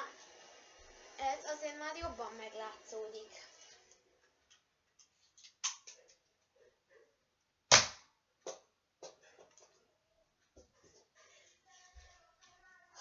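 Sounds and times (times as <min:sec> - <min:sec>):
toy blaster shot: 0:07.7 - 0:08.0.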